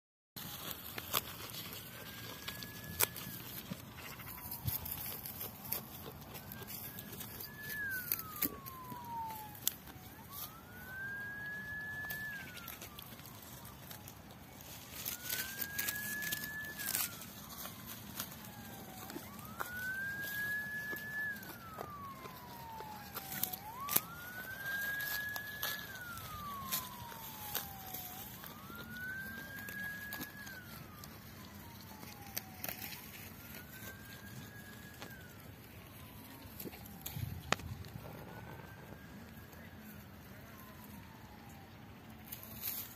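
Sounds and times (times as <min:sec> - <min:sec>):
siren wailing: 0:00.4 - 0:42.9.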